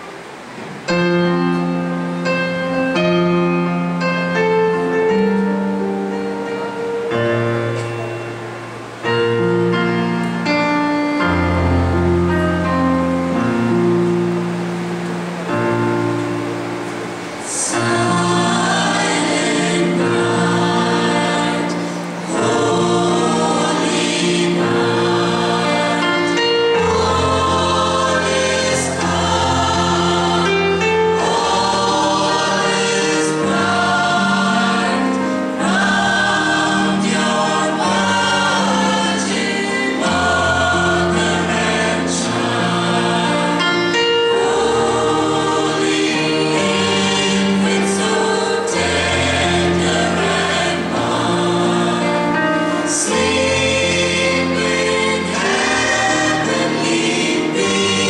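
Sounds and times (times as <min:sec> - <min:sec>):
choir singing a hymn: 0:00.0 - 0:58.0.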